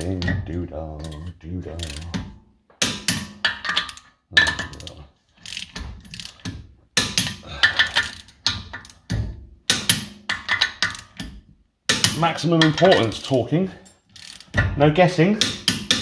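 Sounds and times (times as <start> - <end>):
ratchet wrench clicking: 1.0 - 2.2, 2.8 - 9.1, 9.7 - 11.3, 14.1 - 14.6, 15.4 - 16.0.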